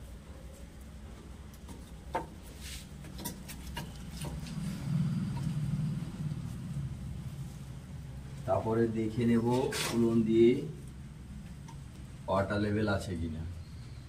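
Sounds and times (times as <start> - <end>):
steady low hum: 0.0 - 14.0
pipe fittings clicking: 3.0 - 4.6.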